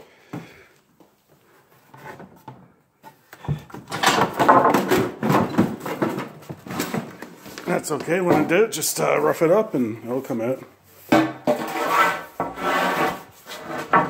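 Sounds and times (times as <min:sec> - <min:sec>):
wood boards scraping and knocking: 0:01.8 - 0:08.8, 0:11.1 - 0:14.0.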